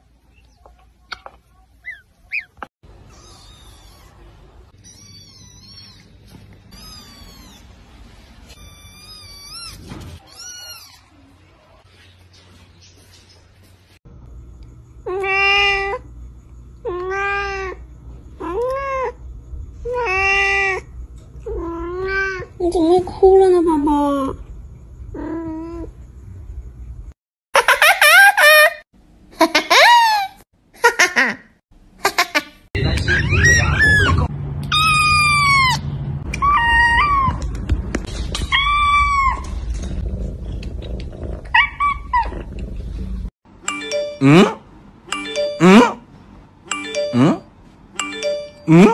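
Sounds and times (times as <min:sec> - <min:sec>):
cat meowing: 0:06.7 - 0:07.7.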